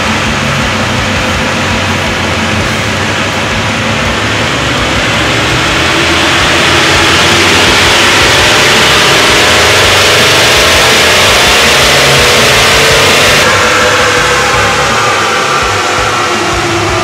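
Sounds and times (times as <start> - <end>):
turbo-diesel engine under load: 0.0 - 17.0.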